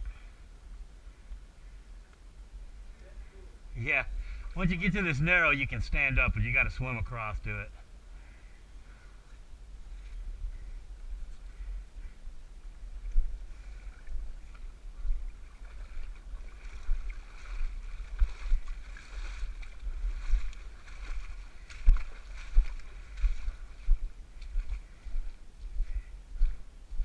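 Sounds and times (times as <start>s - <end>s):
water splashing from swimming: 13.6s - 24.8s.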